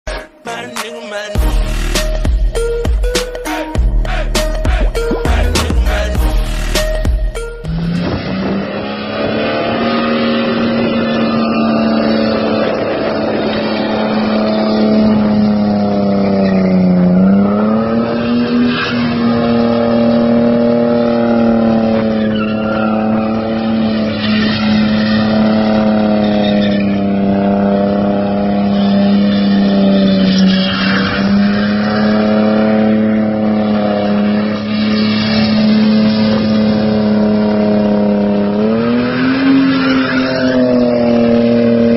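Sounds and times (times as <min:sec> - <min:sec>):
car engine revving high: 0:01.4 - 0:41.9
tyres squealing: 0:22.1 - 0:27.5.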